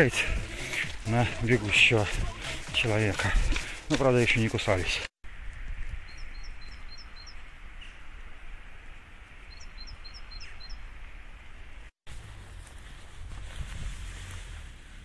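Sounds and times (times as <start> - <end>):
steady outdoor hiss: 5.3 - 15.0
small songbird singing: 6.1 - 8.0, 9.4 - 10.9.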